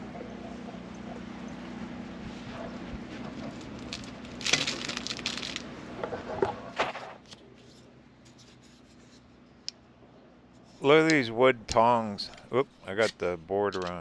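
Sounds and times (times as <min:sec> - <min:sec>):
objects rattling and clinking: 0:03.8 - 0:05.7.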